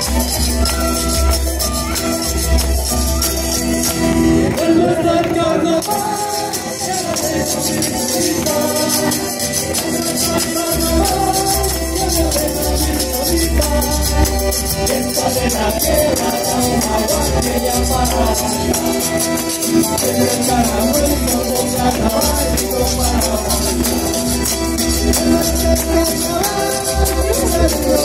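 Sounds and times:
guitars and violins playing folk dance: 0.0s - 28.0s
steady rattling rhythm: 5.8s - 28.0s.

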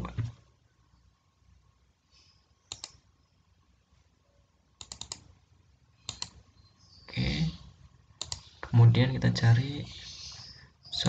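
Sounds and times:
mouse and keyboard clicks: 2.6s - 3.0s, 4.8s - 5.3s, 6.0s - 6.4s, 8.2s - 8.5s.

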